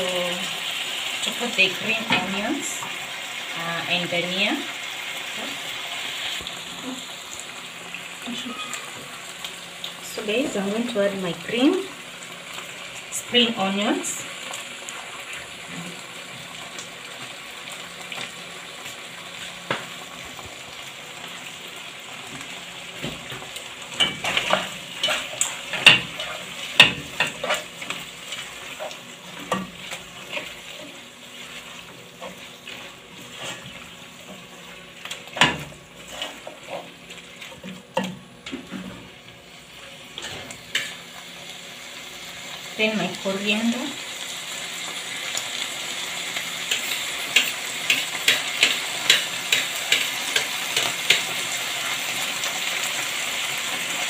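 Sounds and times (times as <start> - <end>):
meat sizzling in a frying pan: 0.0 - 54.0
spoon scraping and knocking pan: 46.7 - 51.4.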